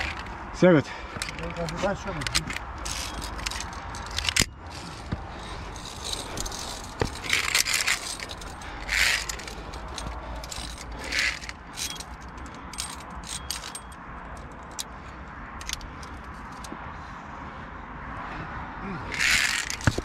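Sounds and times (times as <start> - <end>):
carabiners clinking on steel cable: 0.0 - 0.4, 1.1 - 14.9, 15.6 - 16.8, 19.1 - 20.0
metal scrapes: 2.2 - 13.9.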